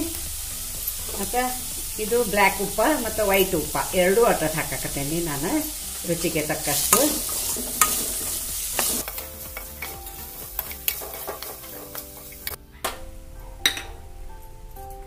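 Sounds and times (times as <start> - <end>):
oil sizzling: 0.0 - 14.8
soft background music: 0.0 - 15.0
ladle scraping in pan: 3.3 - 12.6
ladle clinking on pan: 6.9 - 12.6.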